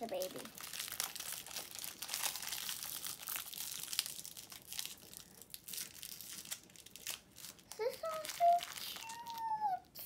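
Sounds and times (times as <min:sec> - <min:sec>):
plastic wrapper crinkling and tearing: 0:00.0 - 0:10.0.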